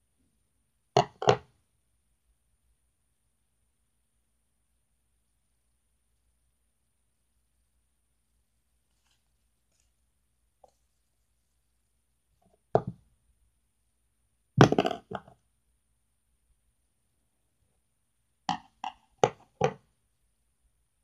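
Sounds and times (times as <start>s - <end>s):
knocks and taps on a tabletop: 1.0s - 1.5s, 12.4s - 13.1s, 14.6s - 15.4s, 18.5s - 19.9s.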